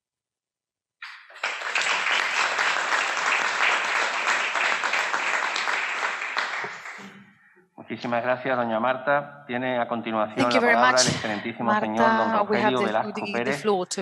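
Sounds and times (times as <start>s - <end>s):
audience applause: 1.0s - 7.2s.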